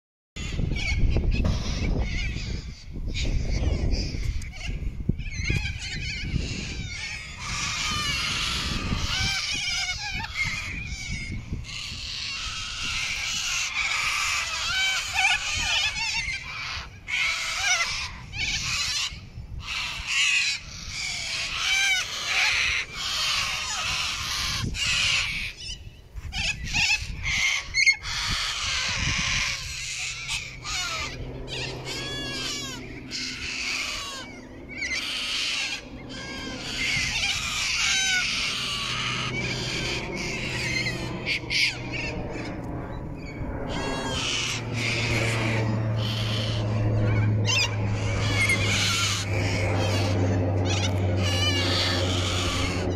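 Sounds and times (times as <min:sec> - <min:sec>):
birds screeching and squawking: 0:00.4 - 0:52.9
low steady hum: 0:28.5 - 0:52.9.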